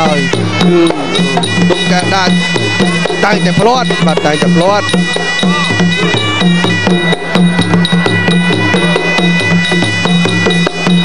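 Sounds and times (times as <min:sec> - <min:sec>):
drums keeping steady beat: 0:00.0 - 0:11.0
high held note: 0:00.0 - 0:11.0.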